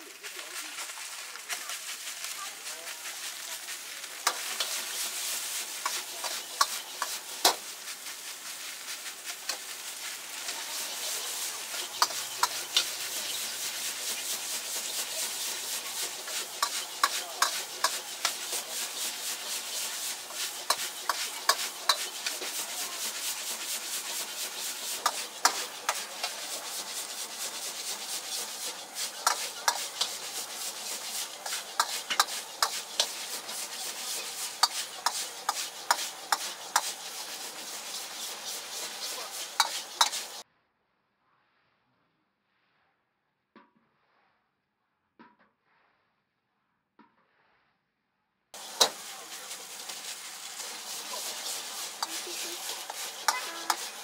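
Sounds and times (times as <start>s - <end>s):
rice sizzling in a wok: 0.0s - 40.5s, 48.5s - 54.0s
metal ladle scraping wok: 3.6s - 40.4s, 48.6s - 54.0s.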